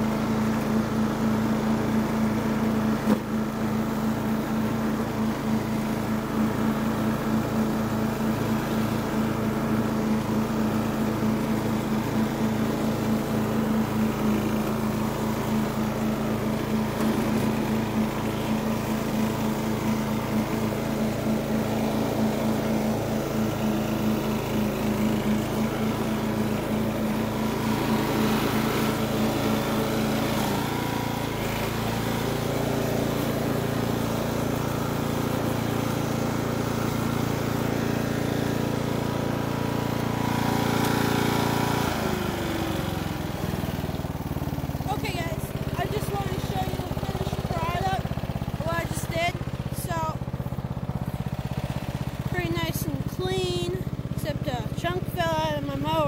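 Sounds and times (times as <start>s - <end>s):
riding lawn mower engine running: 0.0s - 56.0s.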